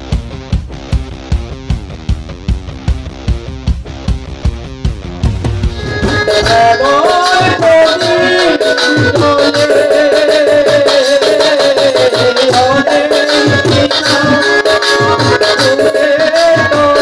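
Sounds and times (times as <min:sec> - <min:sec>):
hand drums beating: 0:00.1 - 0:17.0
man singing folk song: 0:06.2 - 0:14.7.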